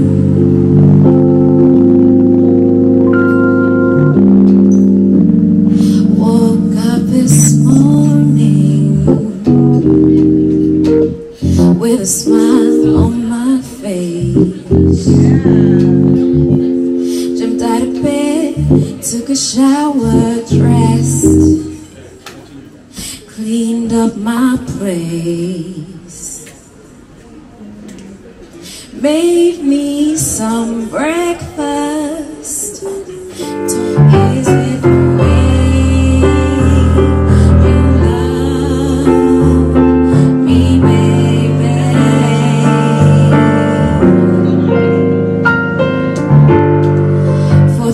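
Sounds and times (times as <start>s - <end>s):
deep bass line: 0.0s - 13.3s, 14.2s - 17.0s, 17.6s - 19.0s, 20.0s - 21.7s, 33.7s - 47.9s
electric keyboard chords: 0.0s - 21.9s, 33.0s - 47.9s
woman singing into a microphone: 5.7s - 21.8s, 23.0s - 26.6s, 28.8s - 44.7s, 47.0s - 47.9s.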